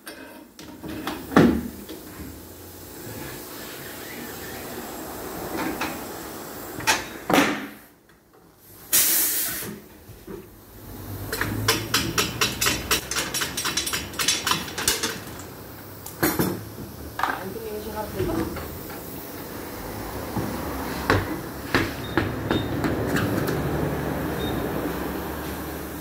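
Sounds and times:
compressed air hiss: 0:02.6 - 0:06.8, 0:08.7 - 0:09.8.

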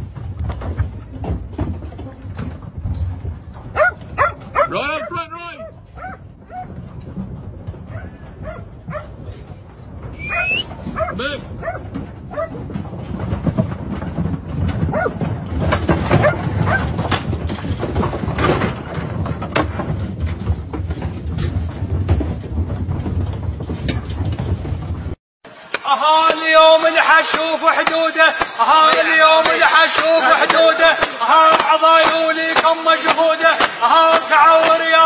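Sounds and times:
sheep hooves on metal deck: 0:00.0 - 0:25.2, 0:26.2 - 0:35.0
dog barks: 0:03.7 - 0:06.8, 0:07.9 - 0:09.2, 0:10.3 - 0:12.6, 0:14.9 - 0:15.2, 0:16.1 - 0:17.0.

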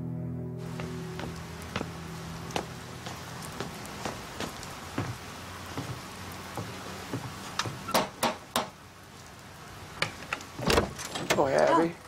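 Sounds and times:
footsteps on wooden steps: 0:00.6 - 0:08.7
steady hiss: 0:00.6 - 0:12.0.

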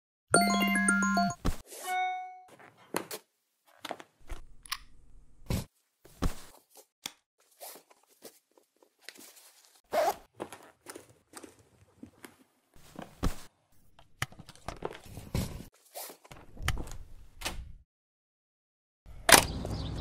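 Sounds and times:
cloth rustling: 0:06.0 - 0:13.5.

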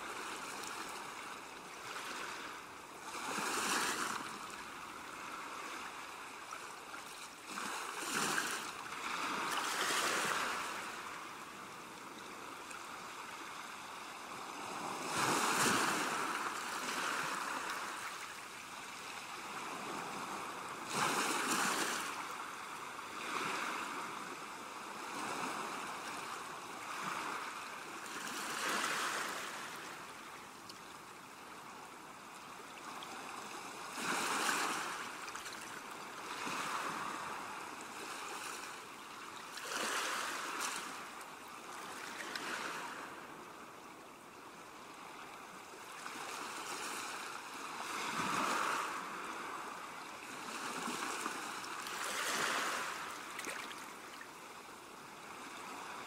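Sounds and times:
sea surf washing up beach: 0:07.5 - 0:30.2, 0:36.2 - 0:38.9, 0:46.0 - 0:54.3.

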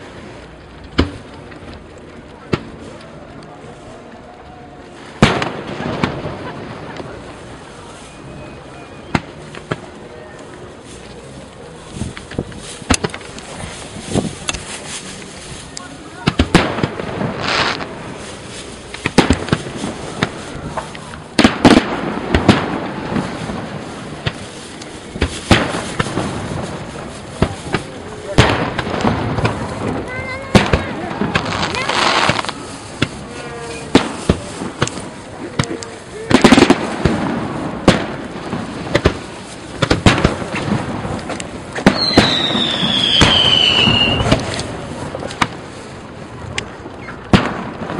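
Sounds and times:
firework cracks and pops: 0:00.0 - 0:47.9
steady noisy background: 0:00.0 - 0:47.9
firework bang: 0:05.2 - 0:07.3, 0:16.2 - 0:45.7, 0:47.0 - 0:47.9.

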